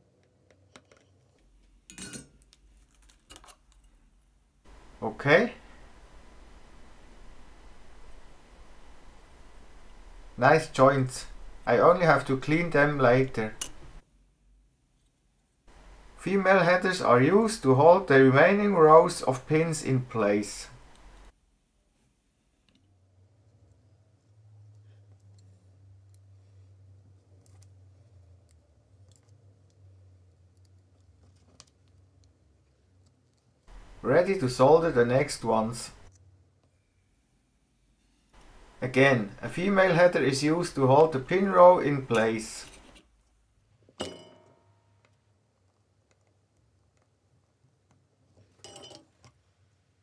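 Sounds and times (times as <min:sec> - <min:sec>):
low steady hum: 0:00.0 - 0:50.0
faint clicks of small parts handled: 0:00.2 - 0:04.0, 0:28.4 - 0:33.7.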